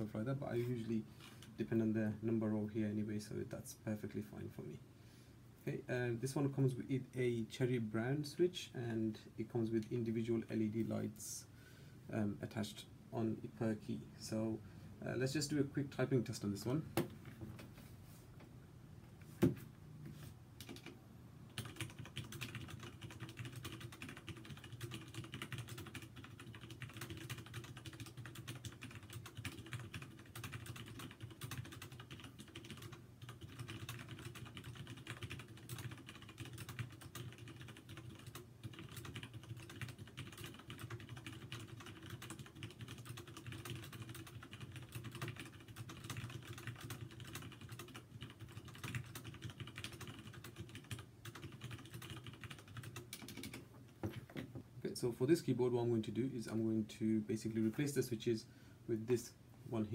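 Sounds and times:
mechanical keyboard typing: 20.6 - 53.6.

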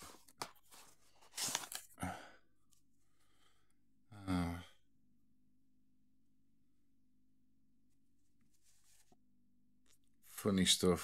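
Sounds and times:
man sighing: 1.9 - 2.4, 4.1 - 4.8.

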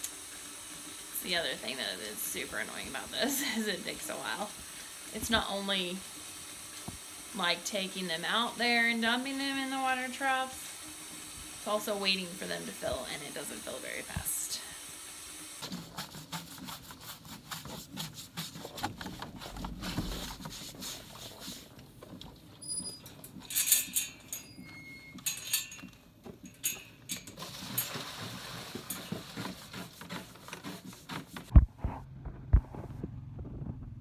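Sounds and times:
hissy bursts: 0.0 - 15.9.

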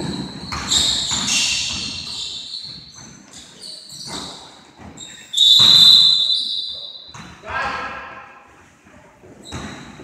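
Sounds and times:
basketball bouncing: 0.0 - 3.2, 4.1 - 6.2, 7.1 - 7.4
sneakers squeaking: 0.0 - 7.5, 9.2 - 10.0.

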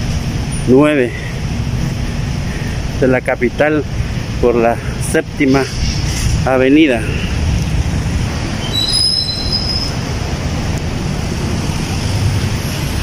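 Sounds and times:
rumble of traffic: 0.0 - 13.0
high-pitched squeal: 5.4 - 6.7, 8.5 - 10.2.

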